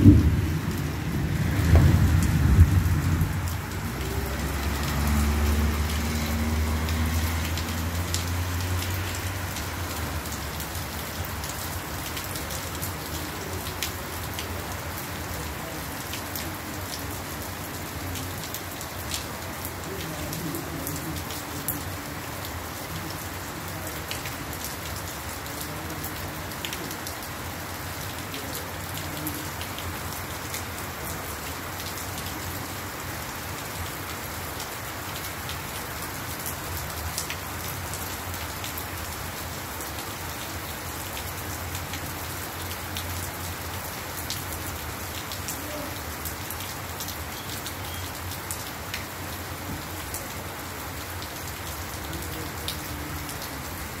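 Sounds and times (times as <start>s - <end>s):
raindrop impacts: 0.0s - 17.0s
heavy rain on gravel: 0.0s - 54.0s.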